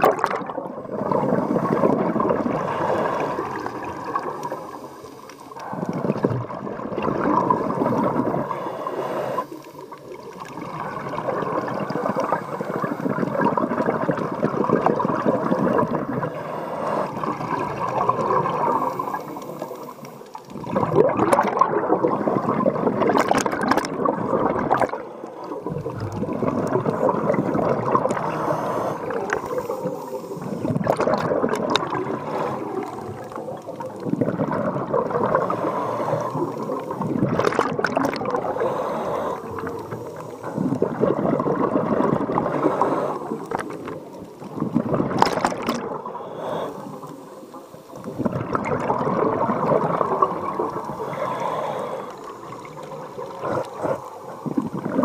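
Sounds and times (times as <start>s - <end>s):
exhaled bubbles rushing: 0.0s - 47.1s, 47.9s - 55.0s
diver breathing through regulator: 1.1s - 6.2s, 7.5s - 10.0s, 14.9s - 20.6s, 24.8s - 31.2s, 31.8s - 33.9s, 35.2s - 37.2s, 38.0s - 41.2s, 42.2s - 44.2s, 45.7s - 48.3s, 50.0s - 55.0s.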